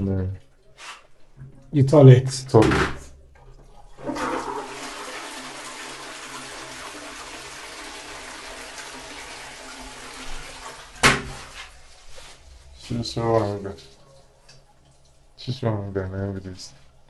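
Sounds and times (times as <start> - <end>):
toilet flushing: 3.2 - 12.4.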